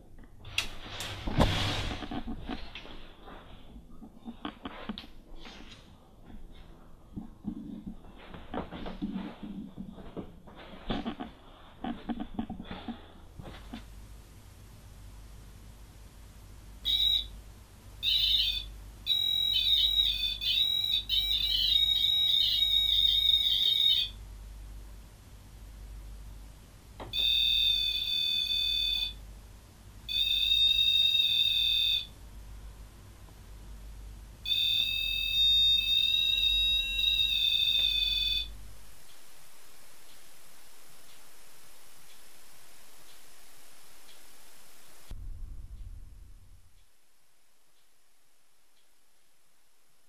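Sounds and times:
shrill electronic alarm beeps: 16.9s - 17.3s, 18.0s - 24.2s, 27.1s - 29.2s, 30.1s - 32.1s, 34.4s - 38.6s
warbling alarm tone: 18.0s - 24.2s, 27.2s - 29.2s, 30.1s - 32.1s, 34.5s - 38.6s.

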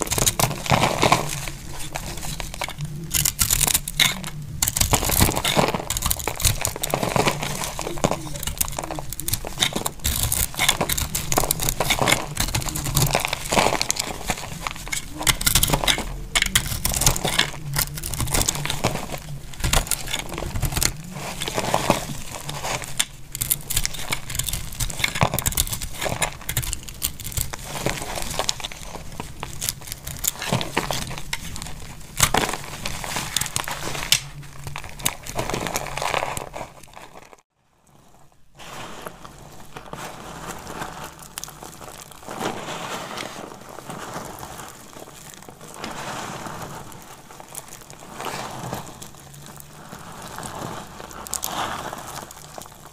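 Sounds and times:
knife cutting crumbly soap: 0.0s - 37.3s
hands crumbling soap shavings: 0.0s - 37.5s, 38.2s - 52.9s.

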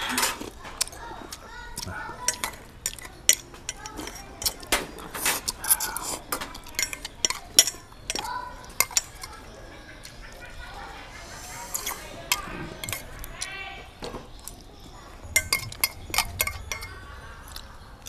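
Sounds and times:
utensils clinking against metal bowls: 0.0s - 10.9s, 11.5s - 18.0s
noodle slurping: 11.2s - 13.2s.

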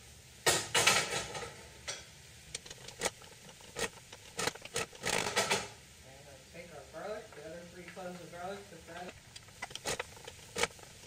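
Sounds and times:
wooden spoon scraping skillet: 9.1s - 11.0s.

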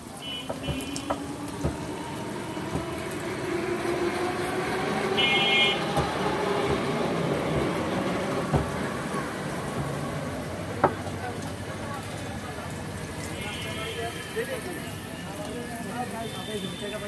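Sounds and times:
vehicle engine passing: 0.9s - 10.7s.

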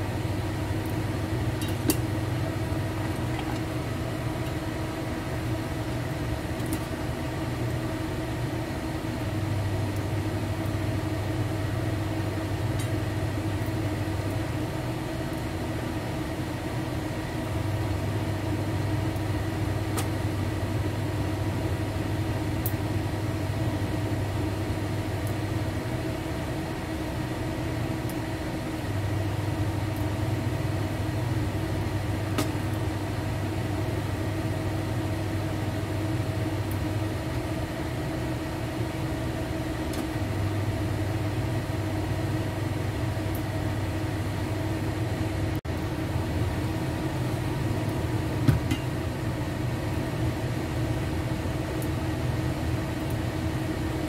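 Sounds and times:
range hood fan humming: 0.0s - 54.0s.

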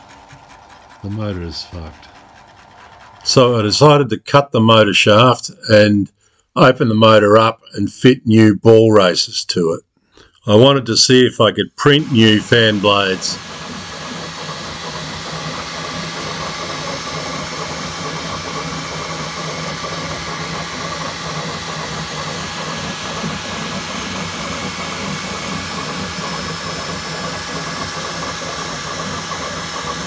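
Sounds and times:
printer fans and motors whirring: 0.0s - 3.8s, 11.9s - 30.0s.

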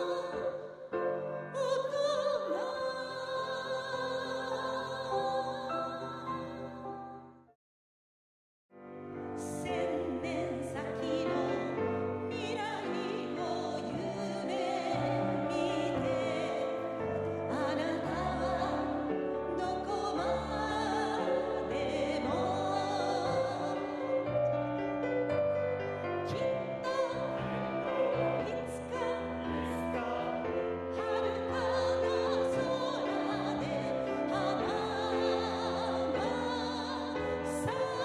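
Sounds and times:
piano accompaniment: 8.8s - 38.0s
person singing: 26.3s - 38.0s.

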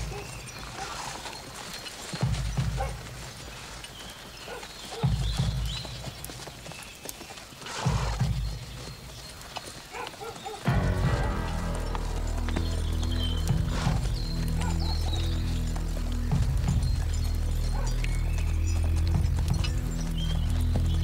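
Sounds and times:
horse hooves clopping: 0.0s - 21.0s
loud low sounds: 10.7s - 17.7s.

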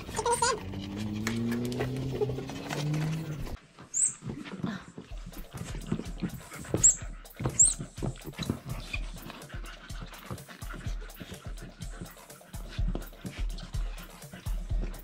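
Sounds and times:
rubber toy squawking: 0.0s - 0.7s
brief high squeaks: 3.9s - 4.2s.

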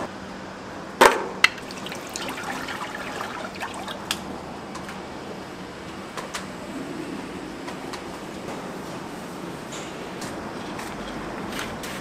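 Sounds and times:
liquid trickling: 1.6s - 4.4s.

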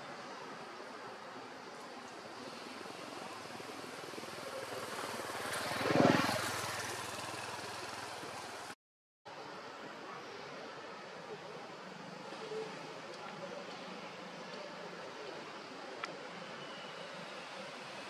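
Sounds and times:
engine passing by: 2.5s - 8.8s.

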